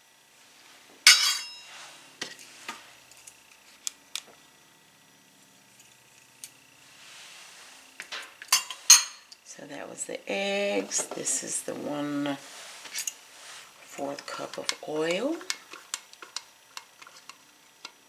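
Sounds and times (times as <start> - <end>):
glass bowl clinking: 1.1 - 1.7, 8.5 - 9.3.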